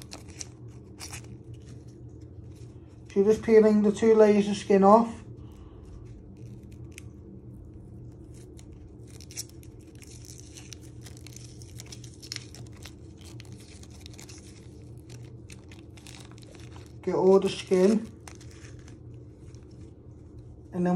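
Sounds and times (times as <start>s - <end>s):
shallot skin crackling and tearing: 0.0s - 3.0s, 5.6s - 20.5s
steady low hum: 0.0s - 20.9s.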